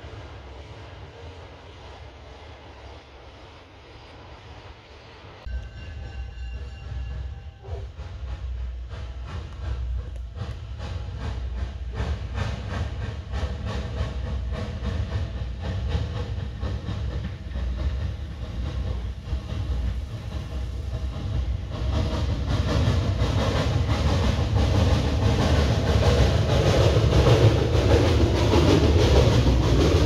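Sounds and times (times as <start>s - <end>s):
steam hiss: 0.0s - 30.0s
steam locomotive chuffing: 0.0s - 30.0s.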